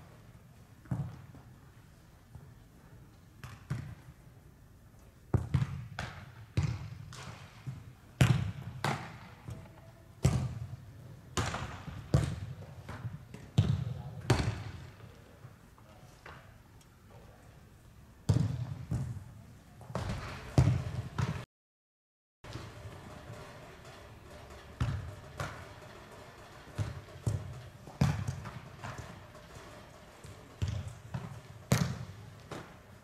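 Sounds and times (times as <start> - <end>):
soccer ball kick thuds: 0.8 - 1.4, 5.3 - 9.6, 10.2 - 10.8, 11.4 - 14.9, 18.3 - 19.2, 19.8 - 21.5, 26.4 - 33.0.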